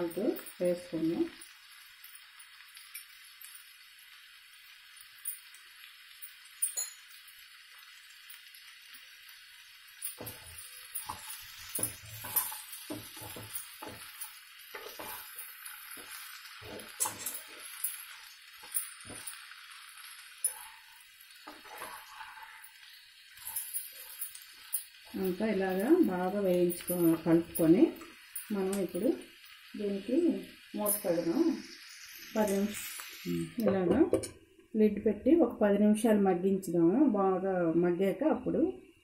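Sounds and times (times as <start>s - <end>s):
vegetables sizzling in oil: 0.0s - 38.6s
spatula scraping and clinking pan: 10.1s - 26.0s.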